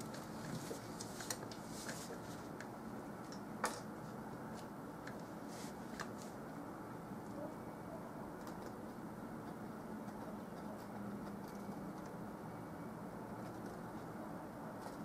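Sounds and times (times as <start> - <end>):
steady low hiss: 0.0 - 15.0.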